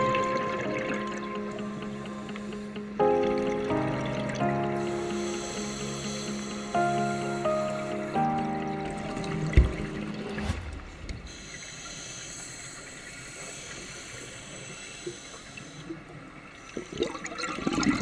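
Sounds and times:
background music: 0.0 - 10.9
scuba regulator hiss: 5.2 - 7.5, 11.3 - 15.9
gurgling rush of bubbles: 16.9 - 18.0.

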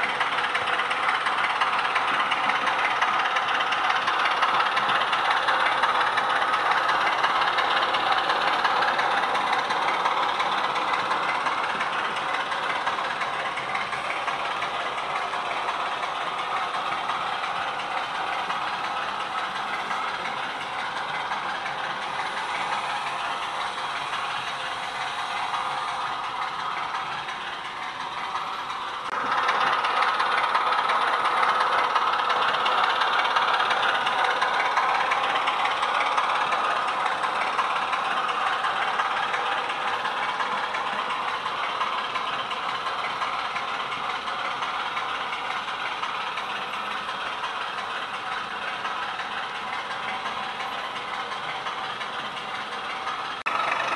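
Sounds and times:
model train diesel engine sound: 0.0 - 53.9.

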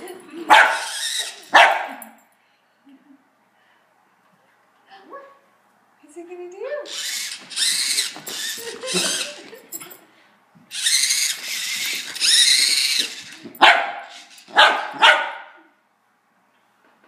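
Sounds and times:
dog barking: 0.5 - 0.9, 1.5 - 2.0, 13.6 - 15.6
high-pitched whining: 6.9 - 9.4, 10.7 - 13.5.

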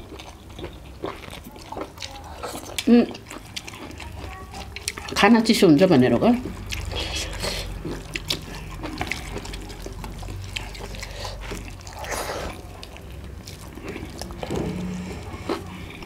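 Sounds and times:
eating clicks and smacks: 6.4 - 14.8.

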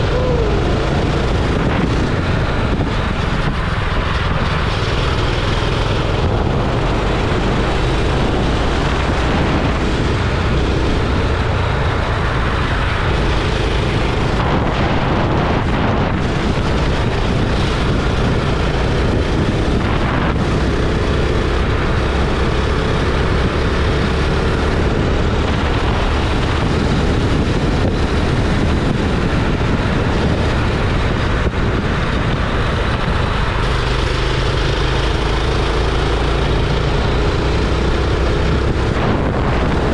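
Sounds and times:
go-kart engine droning: 0.0 - 39.9
wind on microphone: 0.0 - 39.9.

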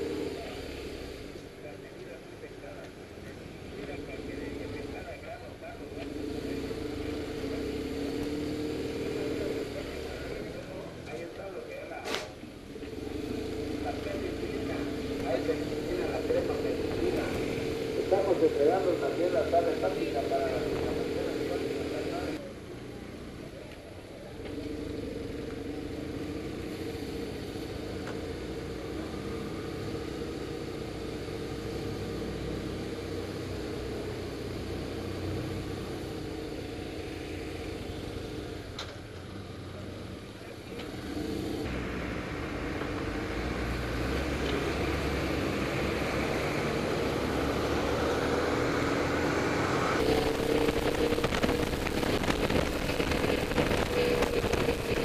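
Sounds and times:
rushing wind noise: 49.4 - 55.0
motorcycle engine running: 50.0 - 55.0.

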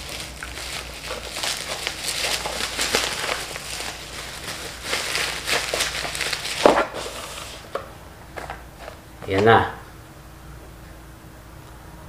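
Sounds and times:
bubble wrap crinkling: 0.0 - 9.4.

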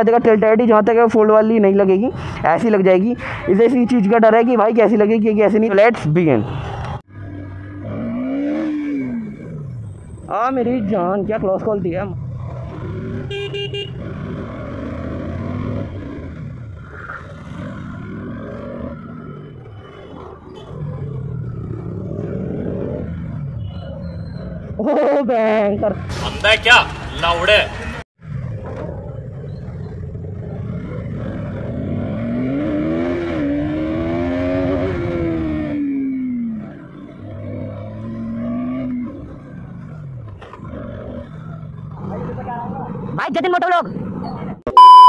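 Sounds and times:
motorcycle engine revving: 6.5 - 26.1, 28.2 - 44.6
vehicle horn blaring: 13.3 - 14.0.

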